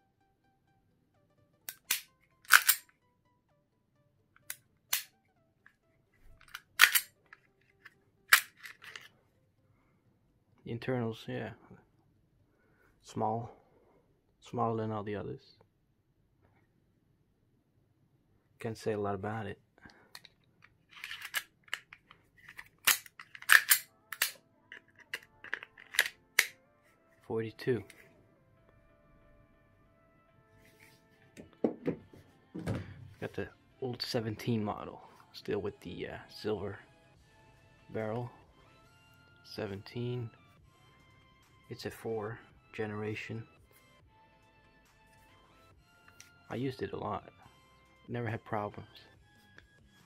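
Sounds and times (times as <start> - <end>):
pistol slide clicks: 1.7 - 2.8, 4.5 - 5.1, 6.5 - 7.1, 8.3 - 9.0, 22.8 - 24.4, 25.0 - 26.5.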